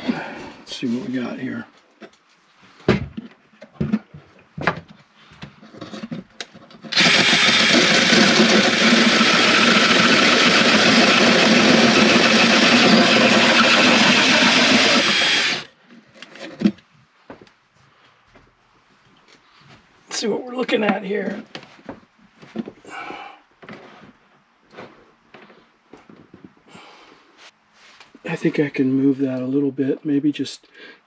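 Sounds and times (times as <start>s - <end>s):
drill cutting with hole saw: 6.9s - 15.7s.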